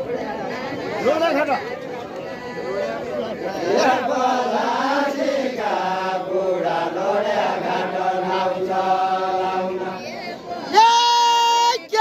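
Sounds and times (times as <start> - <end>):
men singing a slow chant-like song: 3.5 - 10.4.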